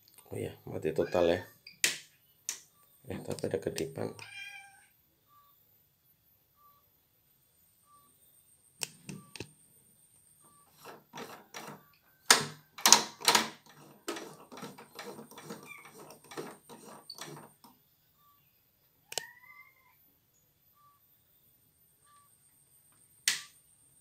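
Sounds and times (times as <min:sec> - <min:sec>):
plastic clicks and knocks: 0:10.8 - 0:17.8.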